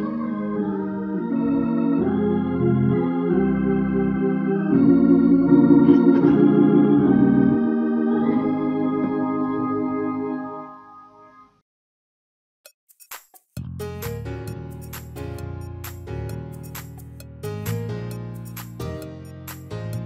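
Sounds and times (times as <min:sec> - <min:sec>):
organ playing sustained chords: 0:00.0 - 0:11.5.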